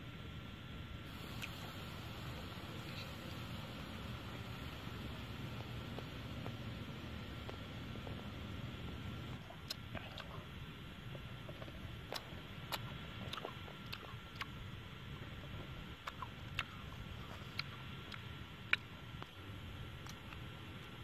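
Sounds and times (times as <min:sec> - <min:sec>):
low steady rumble: 0:00.0 - 0:21.0
crisp food clicks and crackles: 0:11.1 - 0:14.6, 0:20.0 - 0:21.0.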